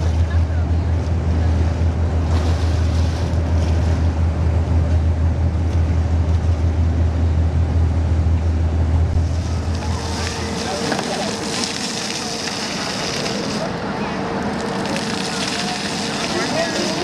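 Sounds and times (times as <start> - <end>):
low rumble: 0.0 - 16.3
choppy water: 0.0 - 17.0.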